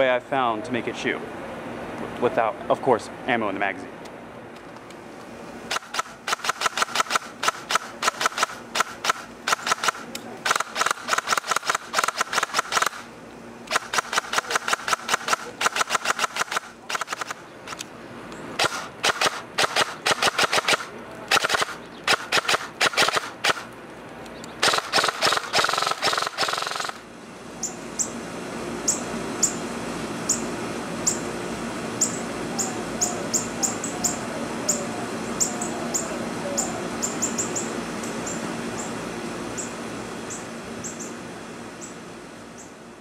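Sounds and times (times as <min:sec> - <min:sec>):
airsoft rifle firing bursts: 0:05.7 - 0:13.1, 0:13.7 - 0:17.4, 0:18.6 - 0:23.7, 0:24.6 - 0:27.0
hummingbird chirping: 0:21.8 - 0:22.1, 0:27.6 - 0:28.2, 0:28.8 - 0:29.6, 0:30.2 - 0:31.3, 0:32.0 - 0:41.2, 0:41.8 - 0:42.8.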